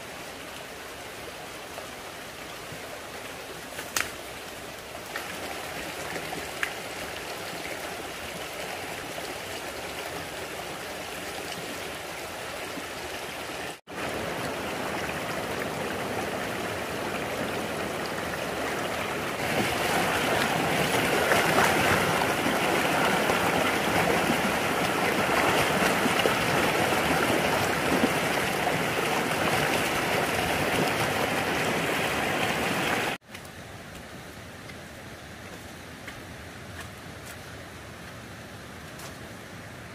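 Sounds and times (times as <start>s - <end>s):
running water splashing: 2.7s - 33.2s.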